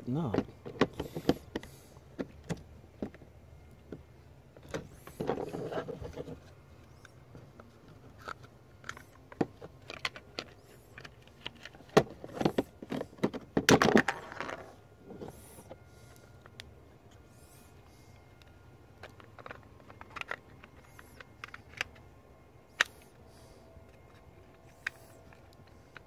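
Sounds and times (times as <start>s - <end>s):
plastic scraping: 4.6s - 15.9s.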